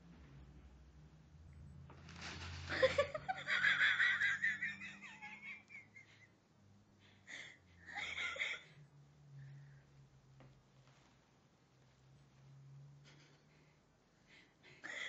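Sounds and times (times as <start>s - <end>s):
person giggling: 2.7s - 6.3s, 7.9s - 8.7s.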